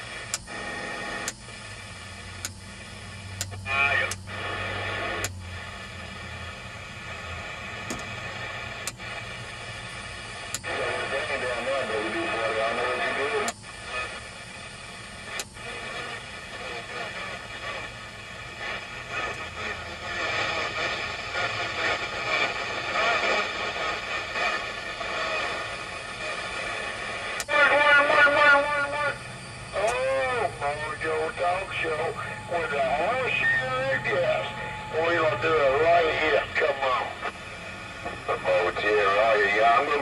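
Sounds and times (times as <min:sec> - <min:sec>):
radio static hiss: 0:00.0 - 0:40.0
garbled voices over radio: 0:03.6 - 0:04.2, 0:10.7 - 0:13.5, 0:27.5 - 0:37.4, 0:38.0 - 0:40.0.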